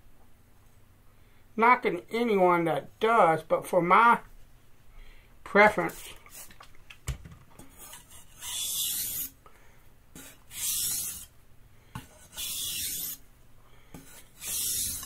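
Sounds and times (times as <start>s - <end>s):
knife scraping on whetstone: 7.6s - 9.4s, 10.2s - 11.3s, 12.0s - 13.2s, 13.9s - 15.0s.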